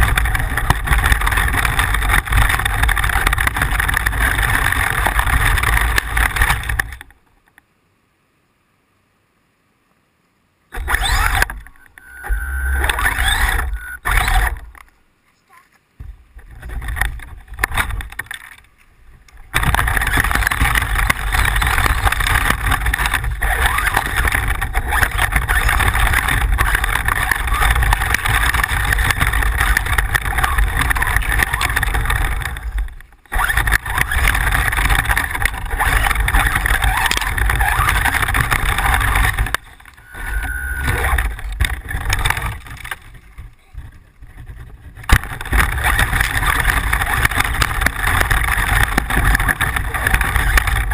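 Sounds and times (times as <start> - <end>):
radio-controlled car drone: 0.0 - 7.1, 10.7 - 15.5, 19.2 - 50.9.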